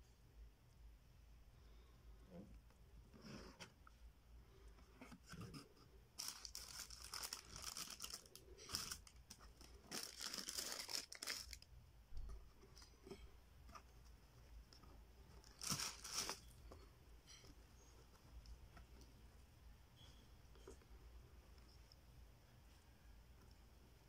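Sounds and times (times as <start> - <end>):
tissue paper crinkling and rustling: 6.2 - 11.7, 15.4 - 16.6.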